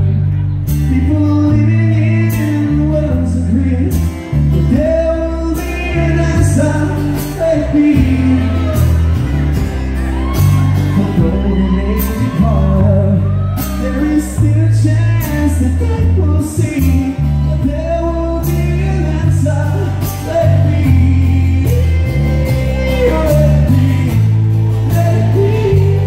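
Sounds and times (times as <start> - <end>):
electric bass line: 0.0 - 26.0
person singing: 0.0 - 26.0
strummed acoustic guitar: 0.0 - 26.0.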